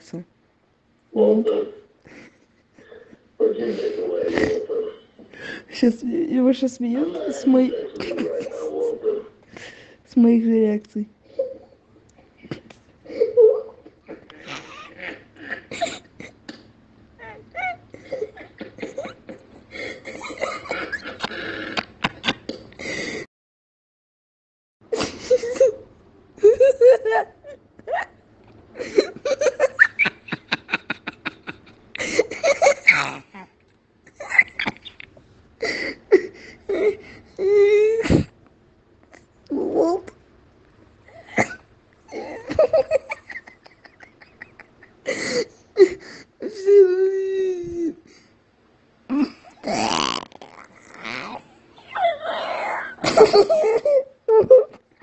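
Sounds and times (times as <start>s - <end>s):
person laughing: 7.7s - 9.2s, 17.6s - 22.9s, 41.4s - 45.9s
gasping wheezy breaths: 22.8s - 23.3s, 45.0s - 46.4s.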